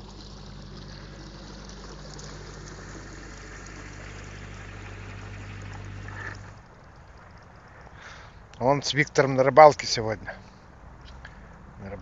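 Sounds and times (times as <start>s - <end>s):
boat diesel engine humming: 0.0s - 8.0s
water wash from propeller: 0.0s - 8.0s.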